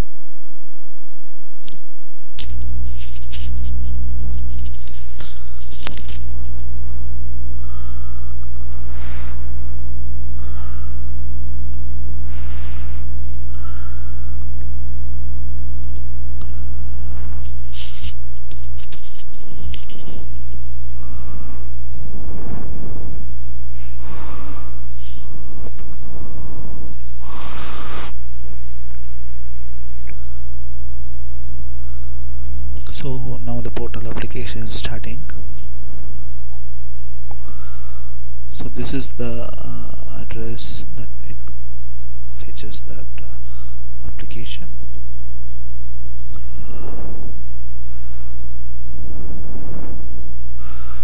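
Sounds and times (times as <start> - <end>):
electrical mains hum: 0.0 - 51.0
person breathing into microphone: 2.4 - 15.4, 16.0 - 30.8, 31.7 - 32.6, 37.3 - 38.5, 43.2 - 44.0, 45.4 - 51.0
faint rushes of noise: 2.9 - 33.5, 45.3 - 51.0.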